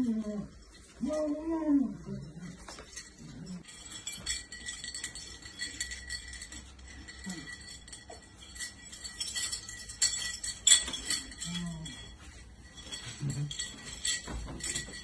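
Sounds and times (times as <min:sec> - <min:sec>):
metal medals clinking: 0:02.3 - 0:15.0.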